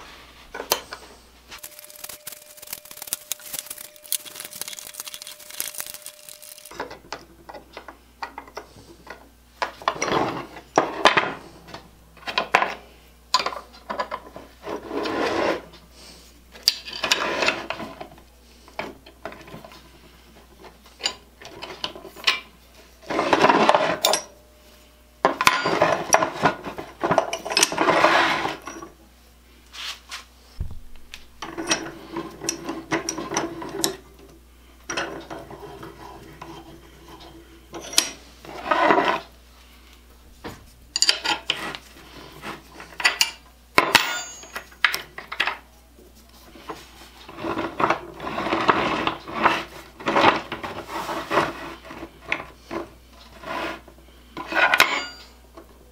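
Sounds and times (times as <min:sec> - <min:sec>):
metal parts scraping and sliding: 0:01.5 - 0:06.8, 0:23.0 - 0:24.3, 0:25.4 - 0:28.8, 0:31.4 - 0:34.0, 0:34.9 - 0:39.3, 0:46.6 - 0:55.4.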